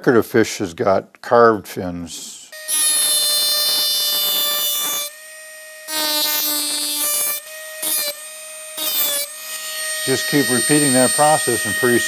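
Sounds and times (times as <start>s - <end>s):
rotary tool grinding metal: 2.6s - 12.0s.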